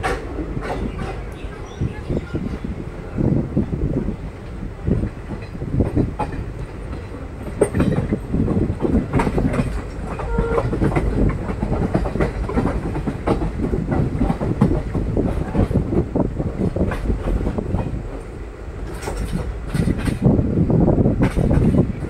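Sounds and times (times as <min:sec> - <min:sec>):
train rumbling at speed: 0:00.0 - 0:22.0
wheels clattering over rail joints: 0:04.8 - 0:20.3, 0:21.2 - 0:22.0.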